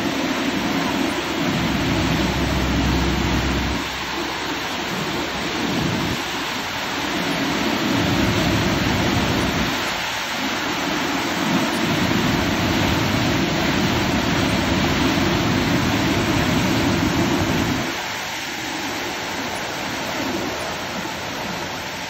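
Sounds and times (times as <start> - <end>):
floodwater rushing over weir: 0.0 - 22.0.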